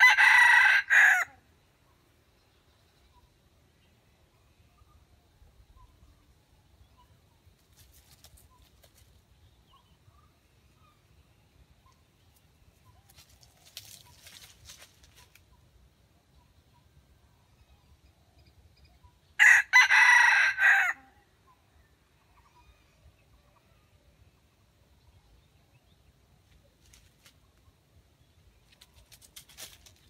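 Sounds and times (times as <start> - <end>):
faint bird chirps: 1.7 - 19.4, 21.3 - 29.2
rustling in dry leaves: 7.6 - 9.2, 12.3 - 15.6, 26.8 - 27.6, 28.5 - 30.0.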